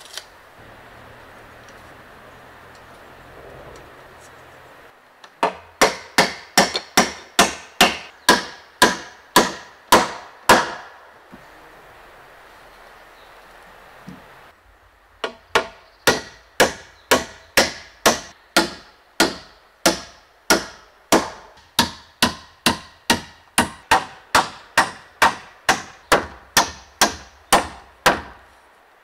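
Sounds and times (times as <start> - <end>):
hammer striking nails into wood: 5.4 - 10.9, 15.2 - 28.4.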